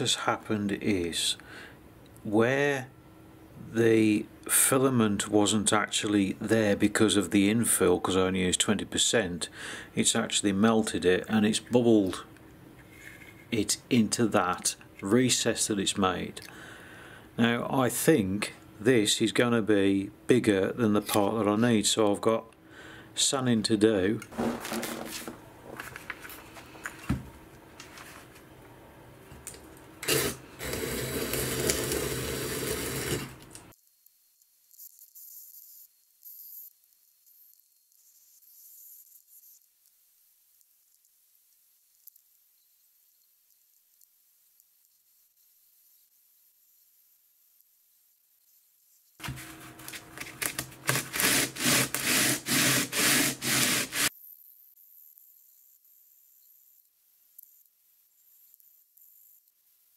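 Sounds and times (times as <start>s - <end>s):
cordless drill sanding slowly: 30.0s - 33.5s, 49.4s - 54.1s.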